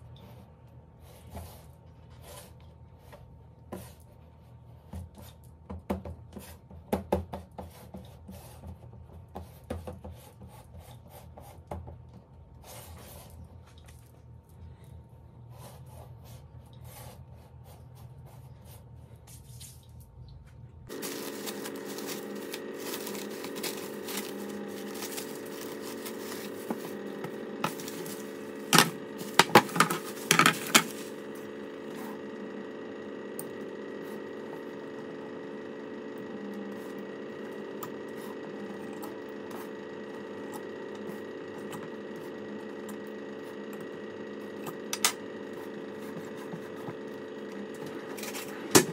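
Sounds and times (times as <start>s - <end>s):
steady multi-tone hum: 9.4s - 48.9s.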